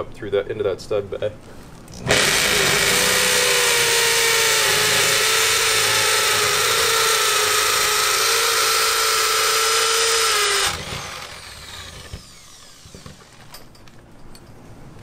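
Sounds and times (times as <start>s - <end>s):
hammer drill boring into wood: 2.0s - 13.7s.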